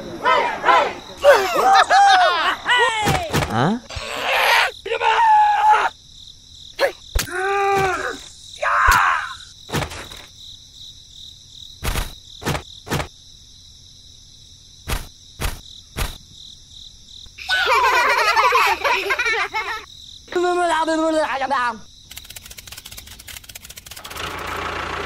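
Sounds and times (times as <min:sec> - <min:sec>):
crickets chirring: 0:00.0 - 0:24.2.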